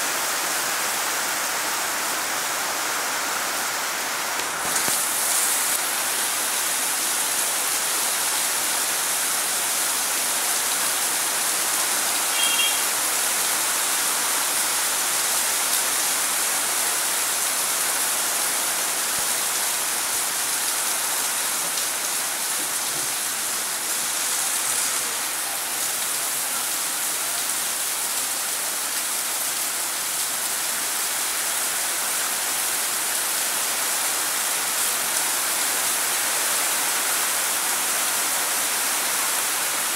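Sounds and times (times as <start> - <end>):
rain splashing on pavement: 0.0 - 39.9.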